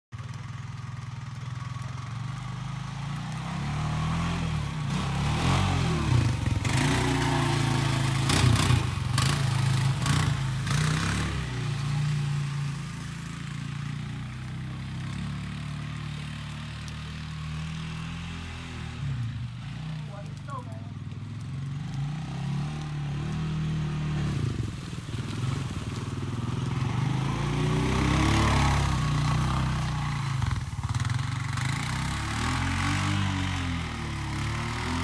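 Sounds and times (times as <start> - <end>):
atv engine revving: 0.2 - 35.0.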